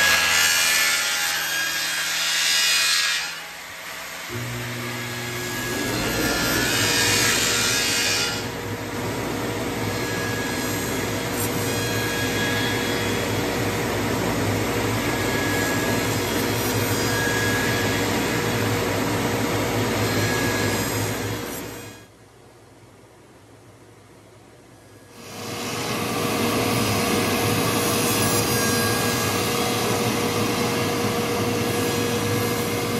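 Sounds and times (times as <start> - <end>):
lathe cutting wood: 4.2 - 18.6, 25.2 - 32.9.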